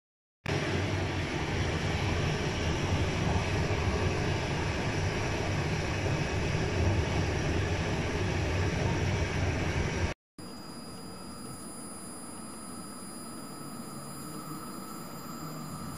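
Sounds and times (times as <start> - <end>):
train rumbling on track: 0.6 - 10.1.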